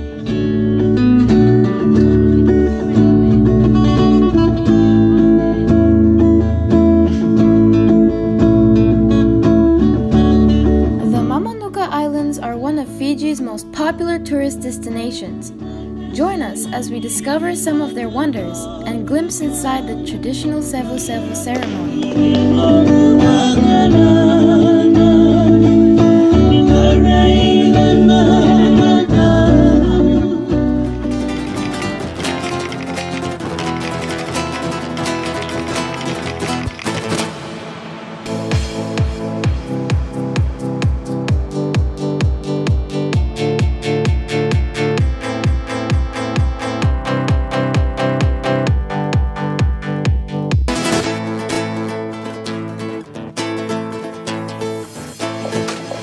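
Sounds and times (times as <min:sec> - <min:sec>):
bass line: 0:00.0 - 0:13.2, 0:13.8 - 0:37.1, 0:38.3 - 0:51.4
acoustic guitar music: 0:00.0 - 0:56.0
men singing together: 0:21.8 - 0:30.5.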